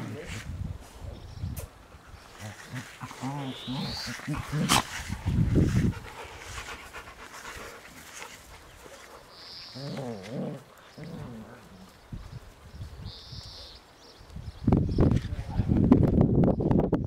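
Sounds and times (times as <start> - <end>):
dog growl-like play calls: 2.4 - 5.4, 9.7 - 12.0.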